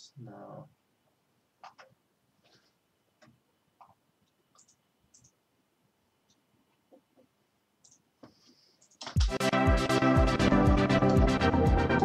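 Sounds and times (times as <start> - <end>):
faint computer mouse clicks: 3.2 - 5.4.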